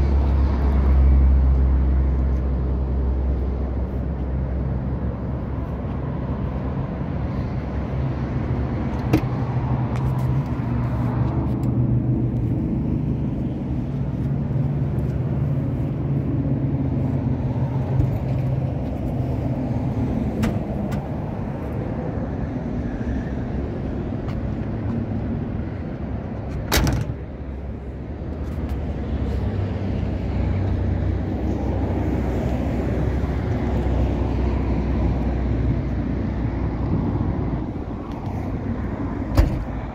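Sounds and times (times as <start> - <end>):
car door shutting: 26.5 - 27.2, 39.2 - 39.9.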